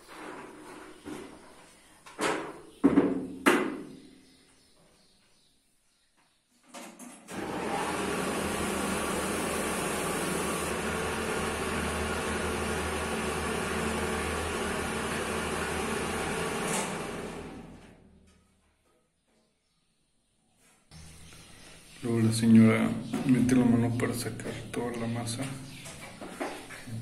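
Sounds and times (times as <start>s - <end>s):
corn mill motor grinding: 7.3s - 18.0s.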